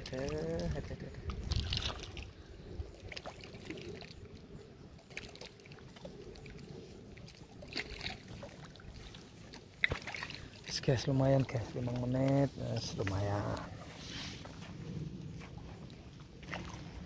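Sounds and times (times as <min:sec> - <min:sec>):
waves lapping against shore: 0:05.0 - 0:17.0.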